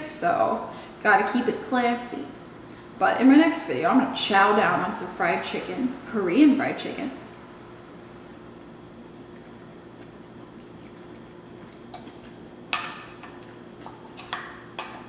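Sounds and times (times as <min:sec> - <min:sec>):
steady low hum: 0:00.0 - 0:15.0
eating sounds: 0:08.7 - 0:15.0.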